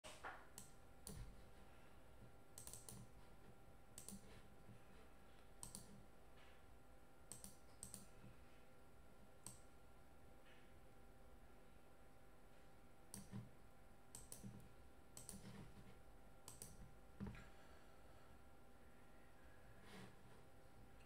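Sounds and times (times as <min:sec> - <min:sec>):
faint clicks: 0:05.6 - 0:06.0, 0:07.3 - 0:08.1, 0:14.1 - 0:14.6, 0:16.5 - 0:17.4.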